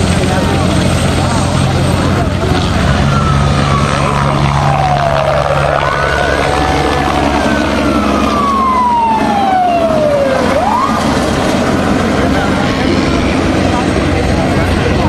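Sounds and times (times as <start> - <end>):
helicopter rotor and turbine: 0.0 - 15.0
siren wailing: 2.7 - 14.0.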